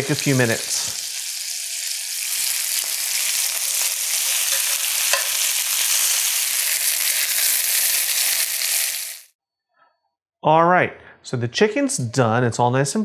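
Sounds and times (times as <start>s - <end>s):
chicken sizzling in oil: 0.0s - 9.3s.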